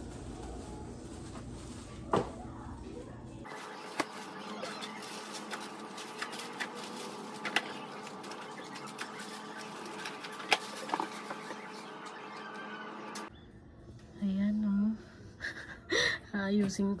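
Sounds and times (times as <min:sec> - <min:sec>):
shopping bags rustling: 0:00.0 - 0:13.3.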